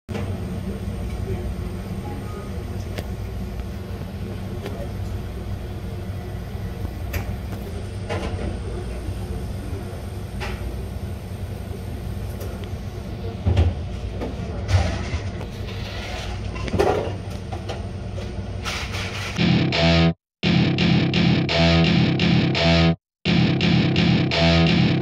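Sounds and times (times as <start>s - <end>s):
low machine hum: 0.1s - 18.7s.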